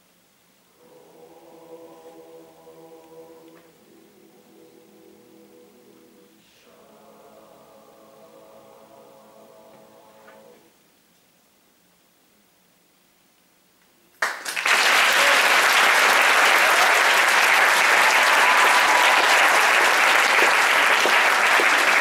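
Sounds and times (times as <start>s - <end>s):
audience applause: 14.2s - 22.0s.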